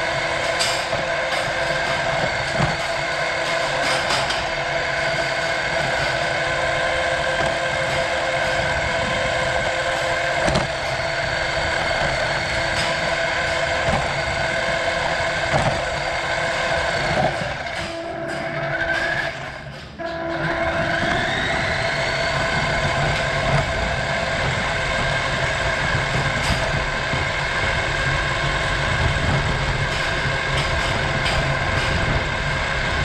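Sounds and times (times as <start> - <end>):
electric motor and gears whining: 0.0 - 33.0.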